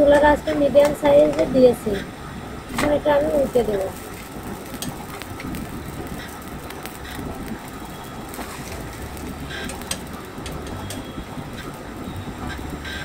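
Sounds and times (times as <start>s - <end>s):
gas burner rumble: 0.0s - 13.0s.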